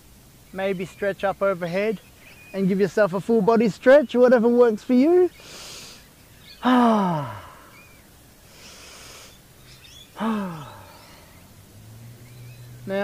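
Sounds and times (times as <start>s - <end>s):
faint bird chirps: 0.4s - 4.3s, 4.9s - 13.0s
person breathing in: 5.4s - 6.0s, 8.4s - 9.4s, 10.2s - 11.3s
person sighing: 6.6s - 7.8s, 10.2s - 11.2s.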